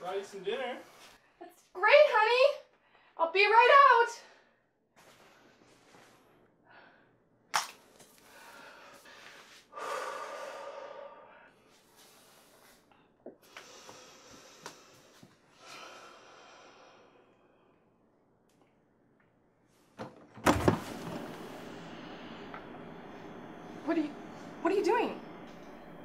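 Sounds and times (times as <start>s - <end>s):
woman breathing: 6.5s - 7.3s, 8.1s - 18.0s, 21.4s - 24.6s.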